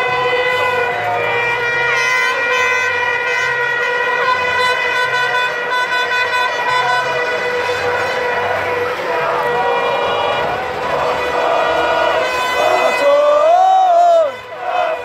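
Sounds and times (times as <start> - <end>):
crowd noise: 0.0 - 15.0
people shouting: 6.5 - 15.0.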